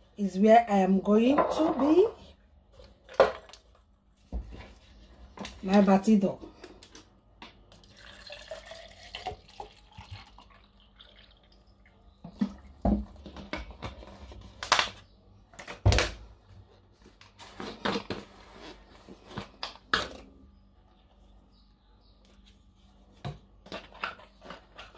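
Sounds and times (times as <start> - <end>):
water pouring into plastic cup: 7.7 - 11.9.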